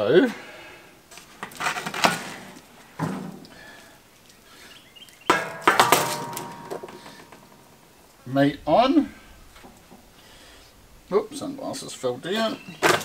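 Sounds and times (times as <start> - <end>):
metal grill rack clanking: 5.3 - 7.7.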